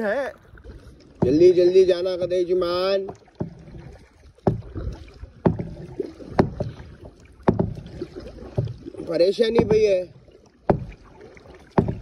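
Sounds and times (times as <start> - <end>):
paddle strokes in water: 0.0 - 12.0.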